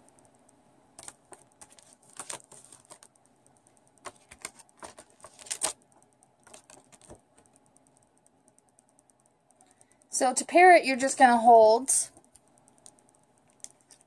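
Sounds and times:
paper rustling and crackling: 0:01.0 - 0:03.1, 0:04.0 - 0:05.8.

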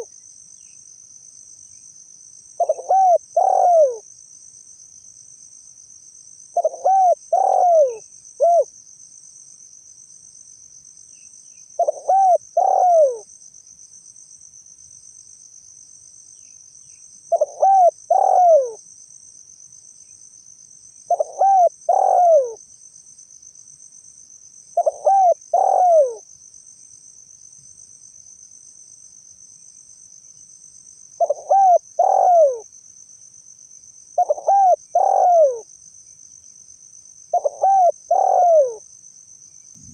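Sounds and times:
dove cooing: 0:02.6 - 0:04.0, 0:06.6 - 0:08.7, 0:11.8 - 0:13.2, 0:17.3 - 0:18.8, 0:21.1 - 0:22.6, 0:24.8 - 0:26.2, 0:31.2 - 0:32.6, 0:34.2 - 0:35.7, 0:37.3 - 0:38.8.

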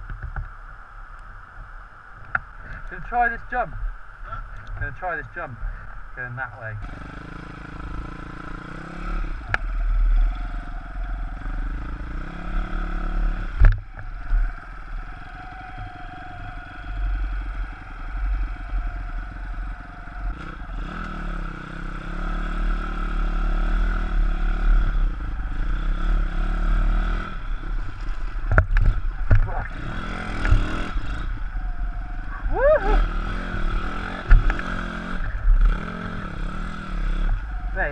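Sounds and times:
motorbike engine revving: 0:06.8 - 0:37.9.

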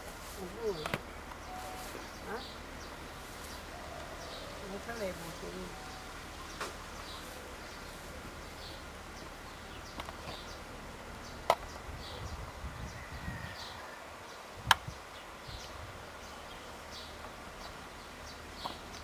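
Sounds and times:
faint high chirps: 0:00.7 - 0:02.6.

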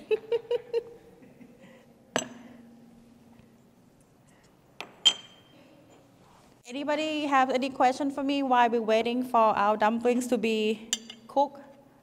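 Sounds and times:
dishes and utensils clinking: 0:04.8 - 0:06.1.

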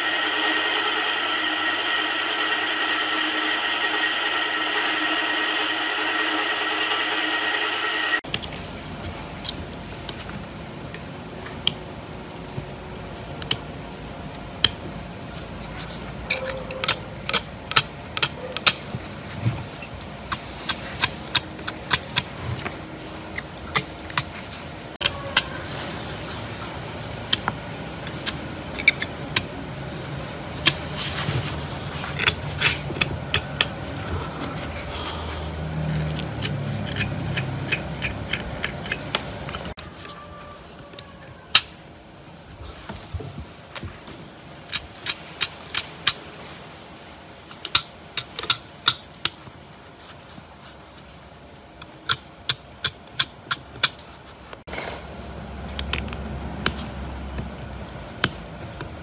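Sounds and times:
motor-driven wire wheel spinning: 0:00.0 - 0:08.2.

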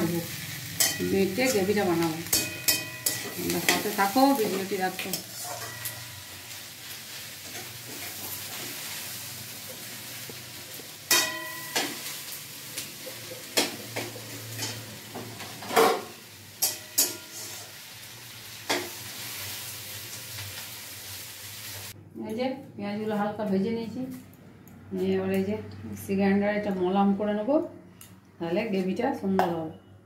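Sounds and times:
onions sizzling in hot oil: 0:00.0 - 0:22.0
metal spatula scraping wok: 0:00.3 - 0:06.6, 0:16.6 - 0:17.9.

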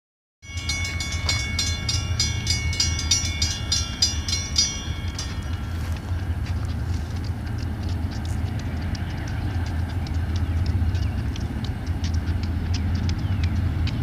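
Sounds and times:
crossing warning bell ringing: 0:00.4 - 0:06.9
low rumble: 0:00.5 - 0:14.0.

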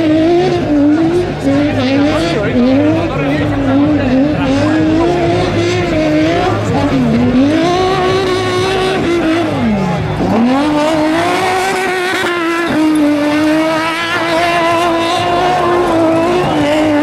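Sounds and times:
car engine revving hard: 0:00.0 - 0:17.0.

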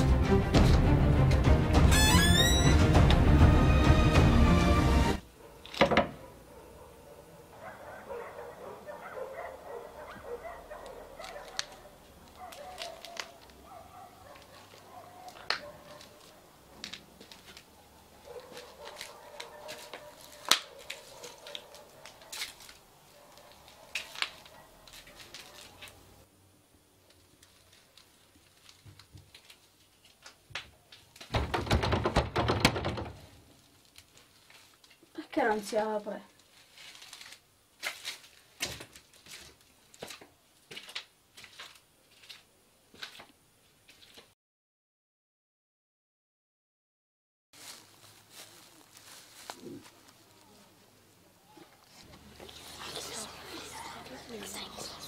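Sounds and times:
wavering animal cries: 0:02.0 - 0:02.8
hands clicking on door: 0:31.2 - 0:33.2
wooden door rattled by handle: 0:31.3 - 0:33.4.

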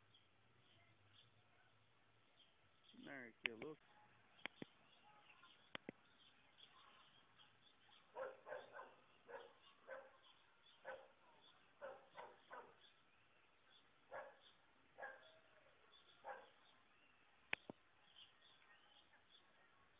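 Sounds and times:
faint dog barking: 0:08.0 - 0:12.9, 0:14.1 - 0:16.7.

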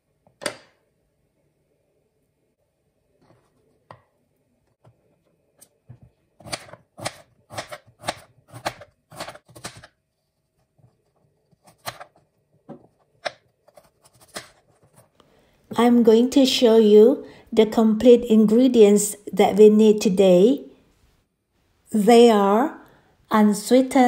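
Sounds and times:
knife chopping on cutting board: 0:06.4 - 0:09.9.

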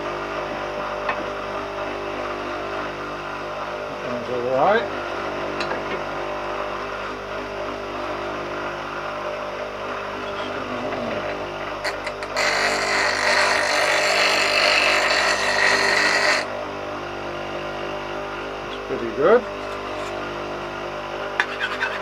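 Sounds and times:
bench grinder humming: 0:00.0 - 0:22.0
chisel grinding on wheel: 0:11.8 - 0:16.5, 0:19.5 - 0:20.2, 0:21.4 - 0:22.0.

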